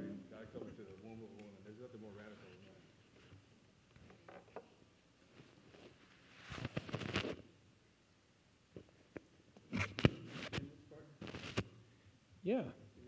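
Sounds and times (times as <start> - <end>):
microphone stand handling rustles: 5.7 - 7.4.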